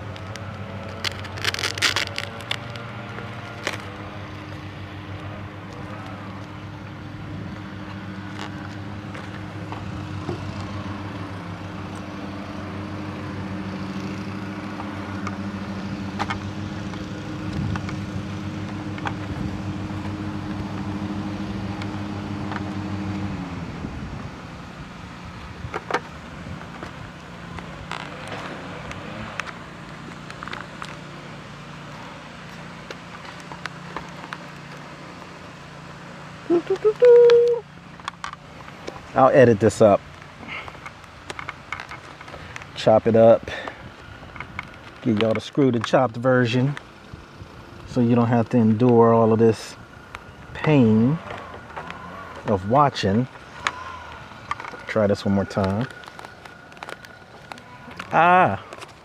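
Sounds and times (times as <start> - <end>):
plastic helmet parts clicking: 16.0 - 19.4, 40.1 - 42.8, 53.6 - 59.0.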